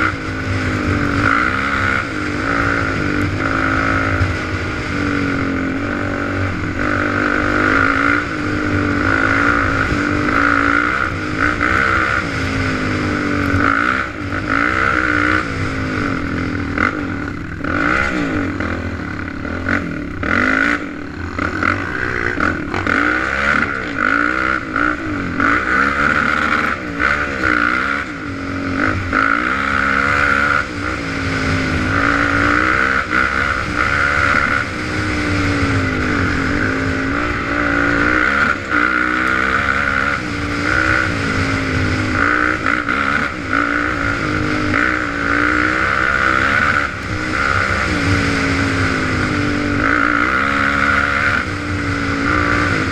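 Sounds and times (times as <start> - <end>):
quad bike engine revving: 0.0 - 52.9.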